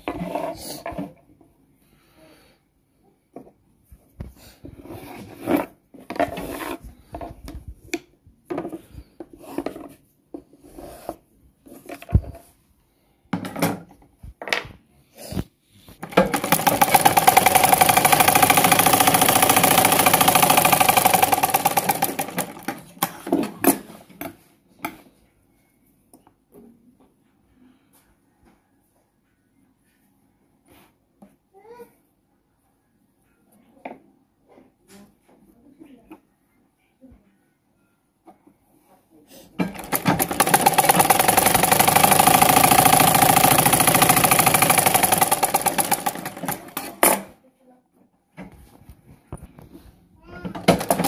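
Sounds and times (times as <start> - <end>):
sewing machine stitching: 16.0 - 23.4, 39.6 - 47.3, 50.5 - 51.0.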